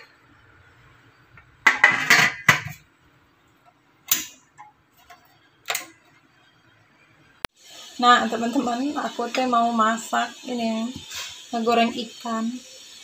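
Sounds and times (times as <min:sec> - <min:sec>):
metal lid clattering onto pot: 0:01.6 - 0:02.8.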